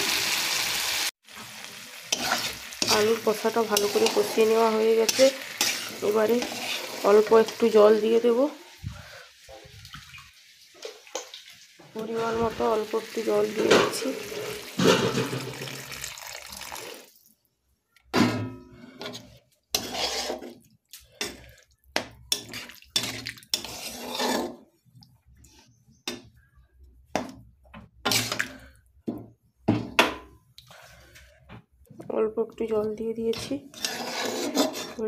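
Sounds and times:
water pouring and splashing: 0.0 - 7.5, 8.7 - 17.3, 22.4 - 24.5
ladle scraping a pan: 2.1 - 7.7, 13.6 - 15.7, 18.7 - 20.6, 22.3 - 24.6, 28.0 - 28.6, 33.3 - 35.0.

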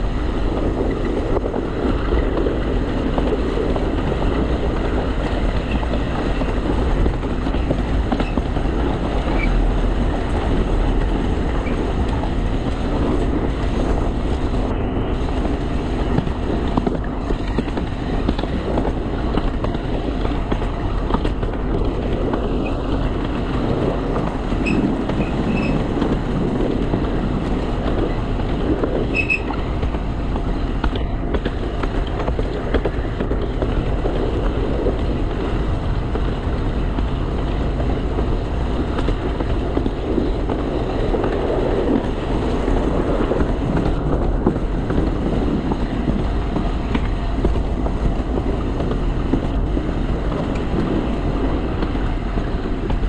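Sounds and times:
train wheels rumbling on rails: 0.0 - 53.0
faint high squeaks: 29.1 - 29.5.

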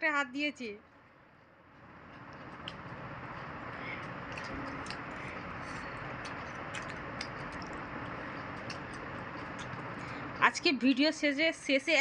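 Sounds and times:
eating clicks and ticks: 2.0 - 10.2.

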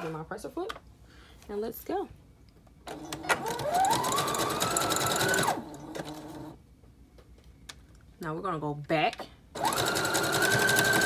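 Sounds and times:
sewing machine motor whine: 2.9 - 6.6, 9.6 - 11.0.

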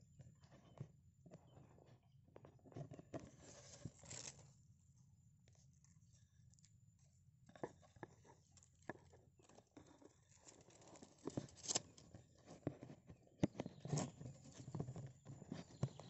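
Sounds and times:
bird chicks clicking and rustling: 7.6 - 16.0.

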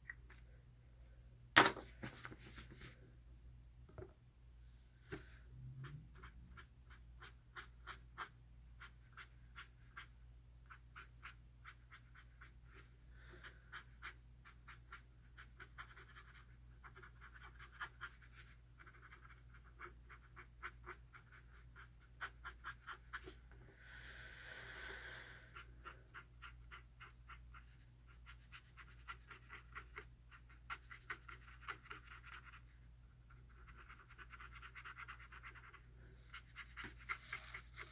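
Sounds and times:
marker scratching on paper: 5.8 - 23.5, 25.0 - 32.7, 33.3 - 37.9.

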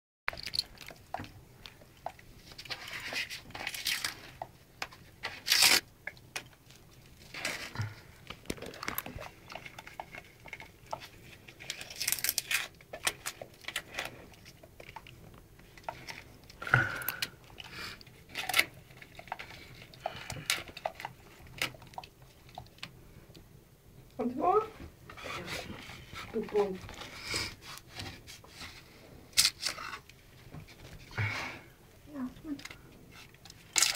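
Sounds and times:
wallpaper tearing: 5.2 - 5.8.

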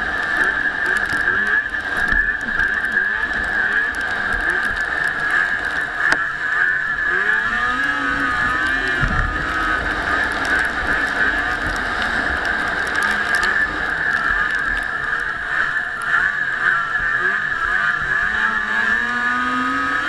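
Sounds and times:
vehicle engine running: 0.0 - 20.0.

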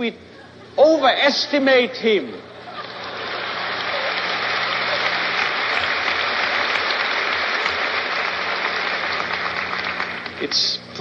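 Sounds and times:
audience laughing: 2.4 - 8.3
audience applauding: 2.7 - 10.8.

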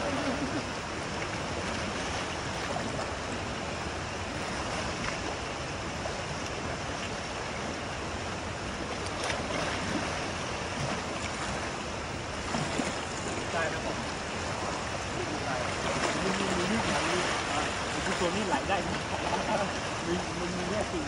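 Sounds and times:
river water rushing: 0.0 - 21.0
elephants splashing in water: 8.9 - 21.0.

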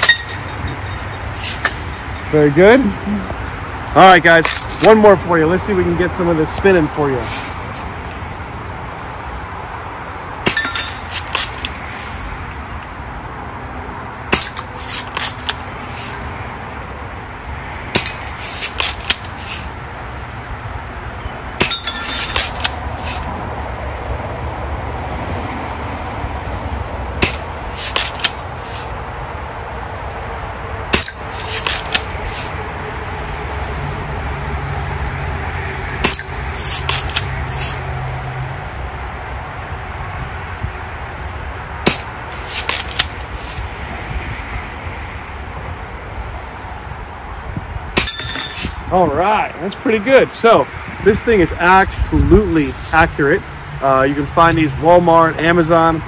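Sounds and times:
bbs clinking on metal targets: 0.0 - 5.0, 10.5 - 12.1, 14.3 - 16.4, 18.0 - 19.7, 21.6 - 23.2, 31.0 - 32.6, 36.0 - 37.8, 48.0 - 48.8.

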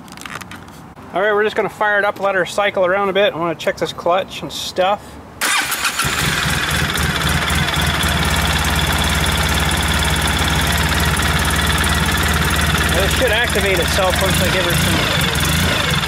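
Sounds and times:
engine starting and idling: 5.4 - 16.0.

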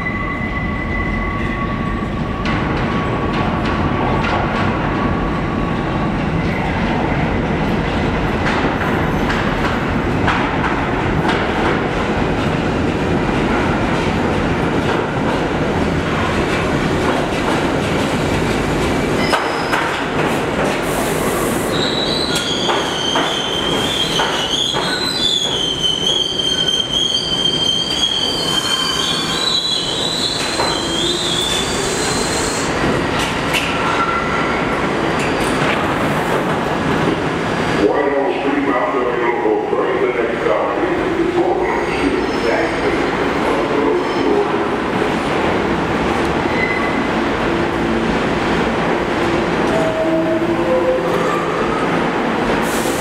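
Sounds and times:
train wheels squealing: 0.0 - 2.4, 21.7 - 32.8, 46.5 - 47.0
subway train rumbling: 0.0 - 53.0.

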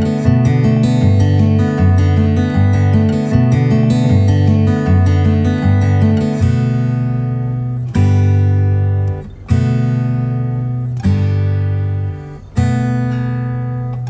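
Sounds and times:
acoustic guitar strumming chords: 0.0 - 14.0.

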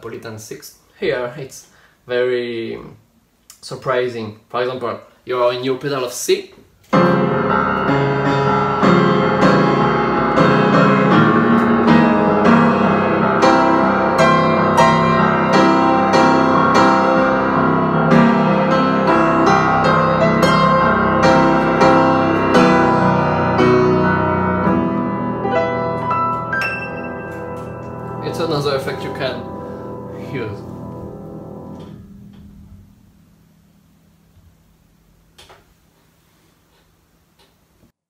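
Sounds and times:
solo jazz piano: 6.8 - 35.8.

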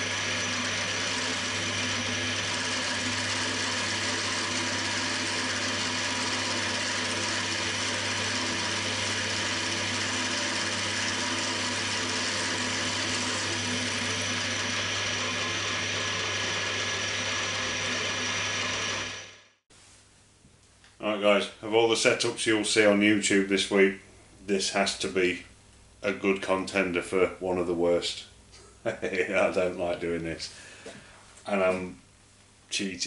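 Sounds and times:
mill-drill cutting aluminium: 0.0 - 19.6.

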